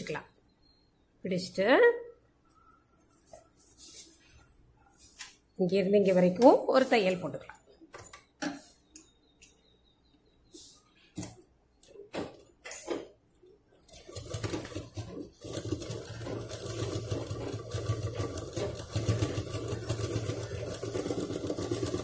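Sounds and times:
sewing machine stitching: 13.8s - 22.0s.

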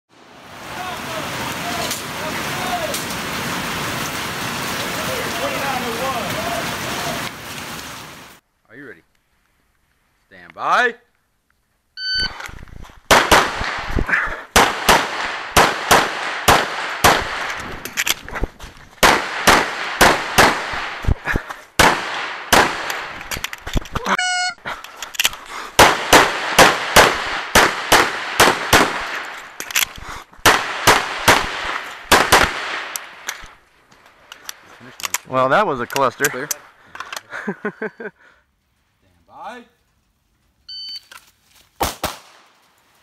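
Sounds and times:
rapid pistol shots: 13.1s - 17.6s, 19.0s - 21.1s, 21.8s - 23.2s, 25.8s - 29.3s, 30.4s - 32.9s.

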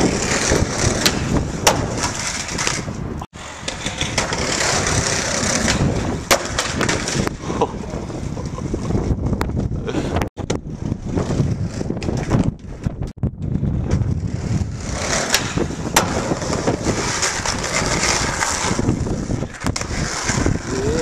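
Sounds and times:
skateboard wheels rolling on pavement: 0.0s - 21.0s
wind buffeting microphone: 0.0s - 21.0s.

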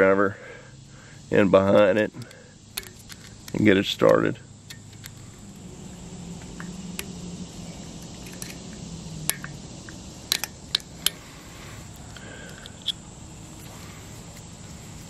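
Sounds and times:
screwdriver metallic clicks: 1.8s - 5.2s, 10.3s - 11.2s.

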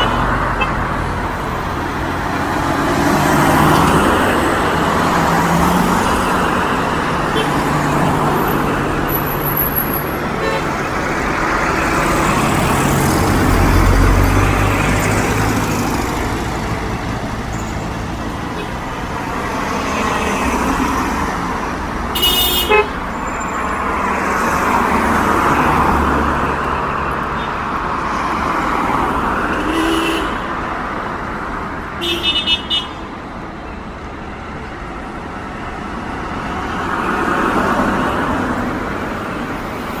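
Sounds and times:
cars passing: 0.0s - 40.0s
car horn toots: 22.2s - 23.0s.

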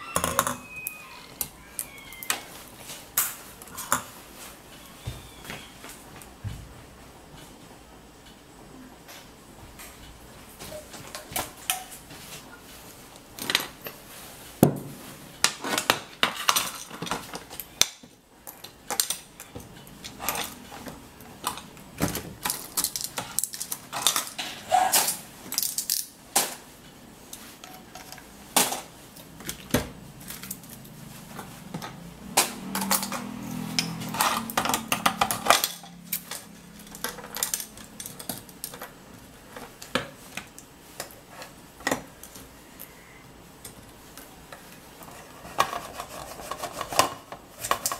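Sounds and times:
metal parts clinking: 32.8s - 38.9s.

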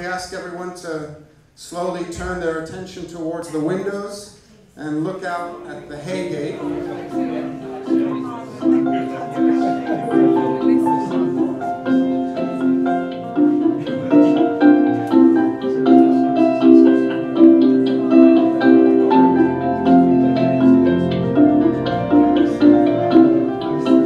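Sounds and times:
struck pitched notes: 5.4s - 24.0s.

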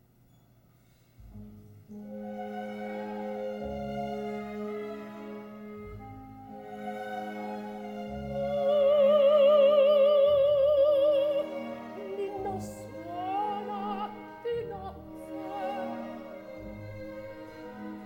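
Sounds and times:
orchestra playing: 1.3s - 18.0s
operatic soprano singing: 8.2s - 18.0s.

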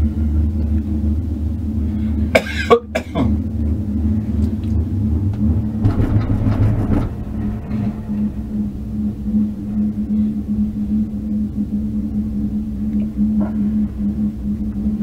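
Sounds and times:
gondola cabin hum and rumble: 0.0s - 15.0s
rougher rumble past tower: 0.0s - 15.0s.

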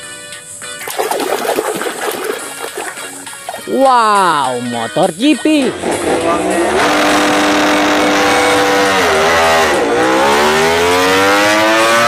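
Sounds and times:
motorcycle engine revving: 5.7s - 12.0s.

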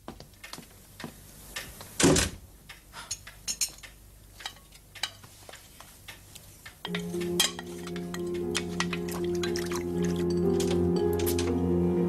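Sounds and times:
dishes clinking: 3.0s - 5.3s, 6.8s - 11.6s.

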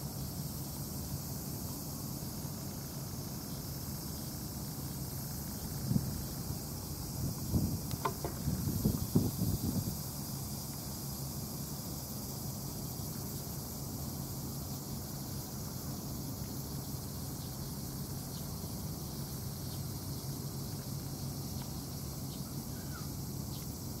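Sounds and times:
high insect hiss: 0.0s - 24.0s
wind gust on microphone: 7.2s - 10.0s.

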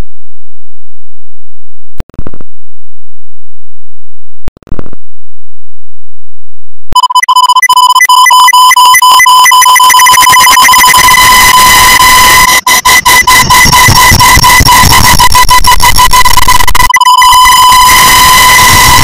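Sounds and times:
distorted pulsing electronic beep: 7.0s - 19.0s.

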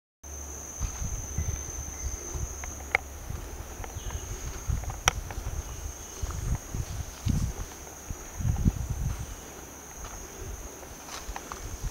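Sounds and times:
insects droning: 0.2s - 11.9s
low thumps: 0.8s - 9.3s.

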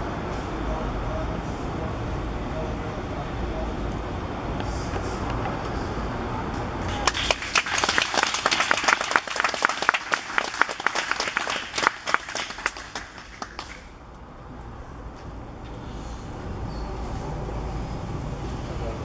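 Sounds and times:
group applauding: 6.8s - 14.0s.

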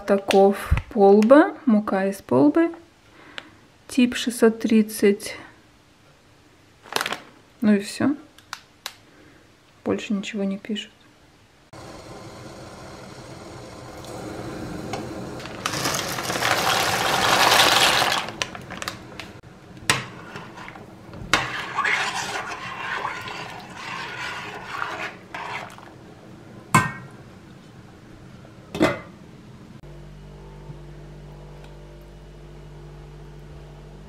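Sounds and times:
pot of water hissing: 11.7s - 19.0s, 21.4s - 25.9s
dry pasta pouring into water: 15.4s - 19.0s.

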